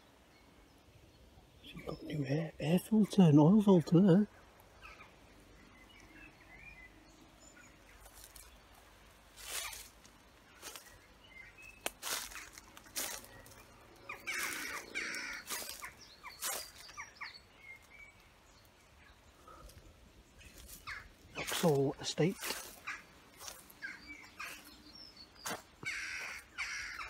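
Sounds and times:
faint bird chirps: 0.0s - 3.5s, 9.4s - 27.0s
leaves and branches rustling: 3.7s - 27.0s.

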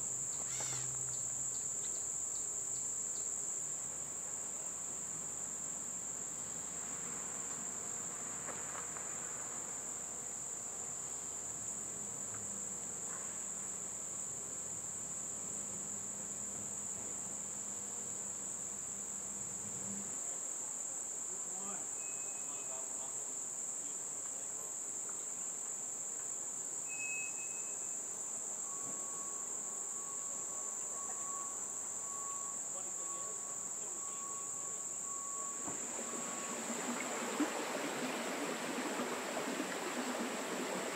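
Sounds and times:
insects singing: 0.0s - 8.0s, 20.1s - 40.9s.

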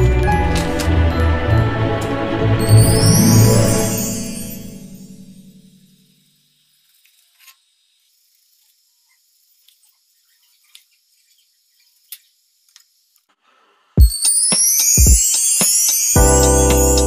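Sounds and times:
loud music with deep beat: 16.2s - 17.0s.

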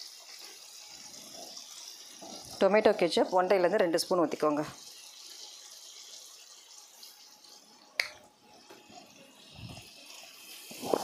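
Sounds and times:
faint vegetables sizzling: 0.0s - 11.0s.

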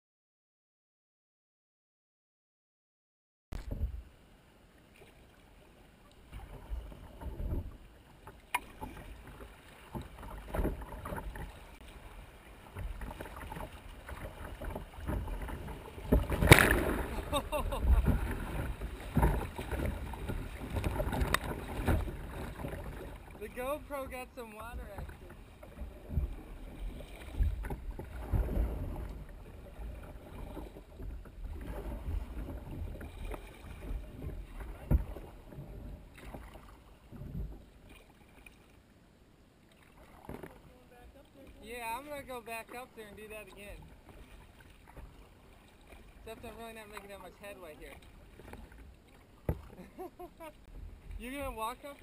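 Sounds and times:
river water splashing against kayak: 3.6s - 52.0s
wind rumbling on microphone: 12.8s - 23.4s, 24.7s - 36.1s.

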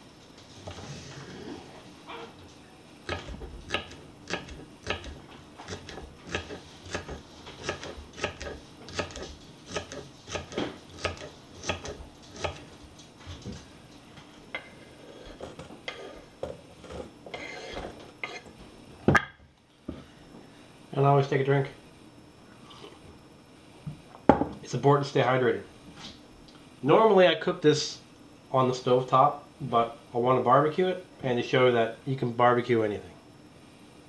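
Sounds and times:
knife chopping on wooden board: 3.1s - 12.7s.

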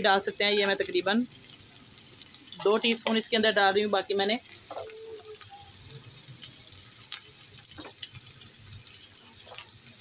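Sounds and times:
food sizzling in hot oil: 0.0s - 10.0s
oil popping and crackling: 0.0s - 10.0s.

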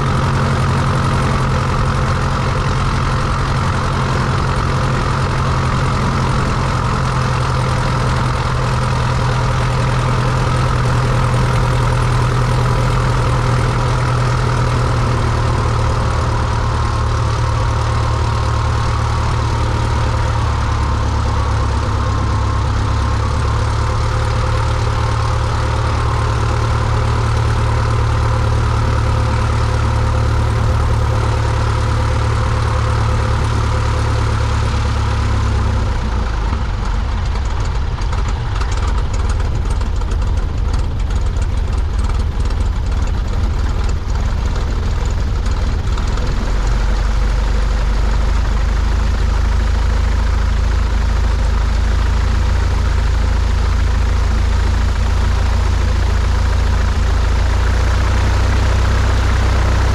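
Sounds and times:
propeller plane engine idling: 0.0s - 59.9s.

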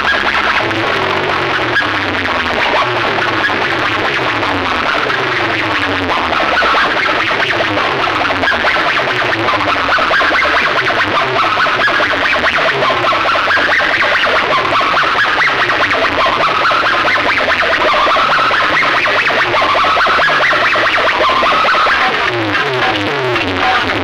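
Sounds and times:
electronic dance music over loudspeakers: 0.0s - 24.0s.

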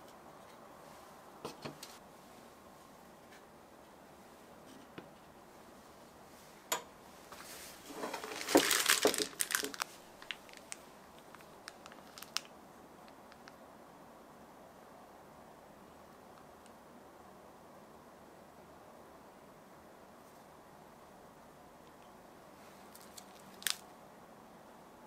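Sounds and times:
faint steady hiss: 0.0s - 25.0s
crinkling and rustling: 7.3s - 12.5s, 22.7s - 23.8s.

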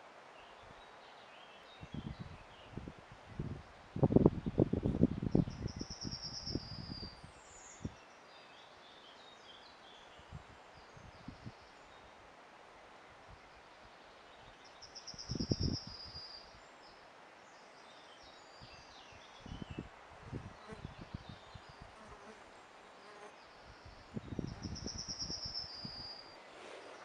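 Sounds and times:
songbird trill: 4.4s - 12.1s, 13.4s - 19.9s, 20.5s - 27.0s
faint bird chirps: 5.3s - 12.1s, 13.4s - 19.9s, 22.9s - 27.0s.

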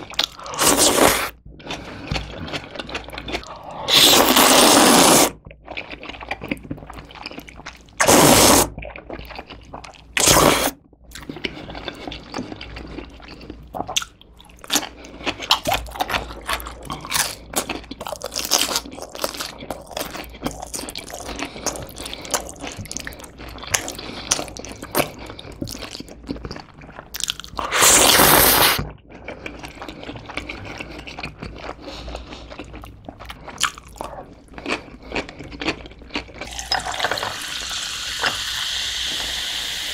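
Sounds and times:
crunchy wet chewing: 0.0s - 37.4s
noodles slurped loudly: 0.5s - 1.3s, 3.5s - 5.4s, 8.0s - 8.8s, 10.2s - 10.8s, 27.6s - 28.8s.

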